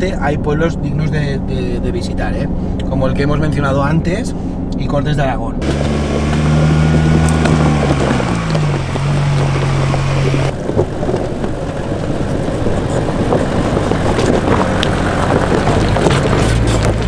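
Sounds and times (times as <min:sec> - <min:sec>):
car engine humming: 0:00.0 - 0:17.0
rushing wind: 0:05.6 - 0:17.0
tyre noise: 0:05.6 - 0:17.0.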